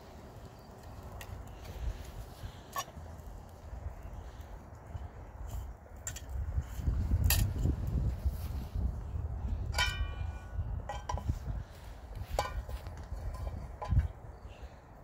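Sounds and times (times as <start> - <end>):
metal cookware clinking: 9.6 - 11.3.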